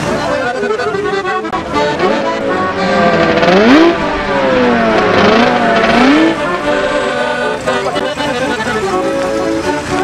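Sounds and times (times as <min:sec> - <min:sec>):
background music: 0:00.0 - 0:10.0
motorcycle engine revving: 0:01.4 - 0:08.0.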